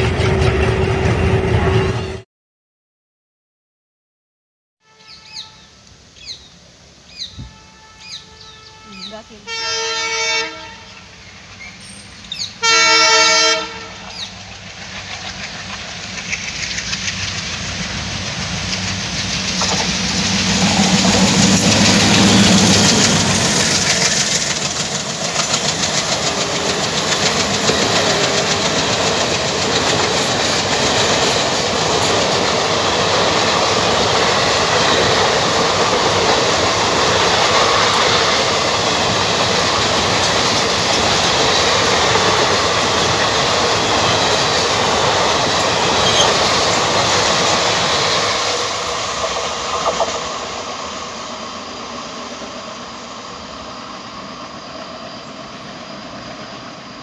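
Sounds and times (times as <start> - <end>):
locomotive engine hum: 5.3 - 57.0
train wheels clickety-clack: 11.4 - 51.2.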